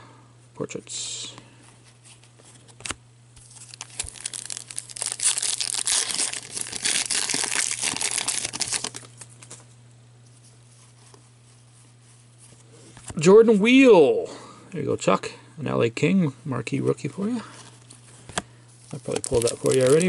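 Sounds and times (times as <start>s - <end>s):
foil pack tearing and crinkling: 2.8s - 9.5s, 18.9s - 20.0s.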